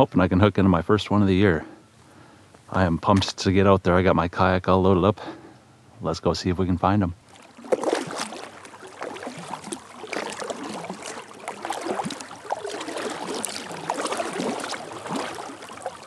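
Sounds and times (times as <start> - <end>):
kayak paddle splashing: 7.2 - 16.0
water washing along hull: 7.2 - 16.0.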